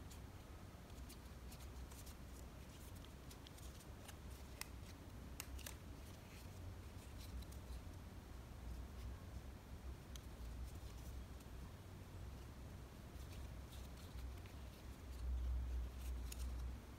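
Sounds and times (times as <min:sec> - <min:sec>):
low steady hum: 0:00.0 - 0:16.9
paper crinkling while folded: 0:00.9 - 0:07.8.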